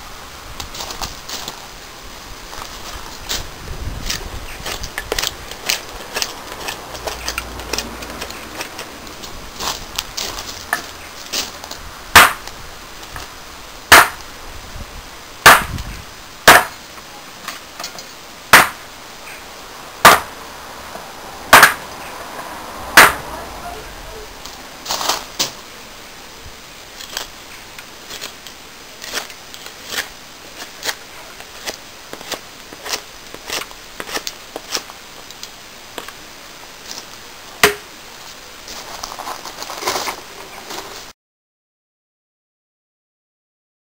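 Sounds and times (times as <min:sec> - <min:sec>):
billhook chopping wood: 0:12.2 - 0:12.5, 0:13.9 - 0:14.2, 0:15.4 - 0:15.8, 0:16.5 - 0:16.8, 0:18.5 - 0:18.8, 0:20.0 - 0:20.3, 0:21.5 - 0:21.8, 0:23.0 - 0:23.2, 0:37.6 - 0:37.9.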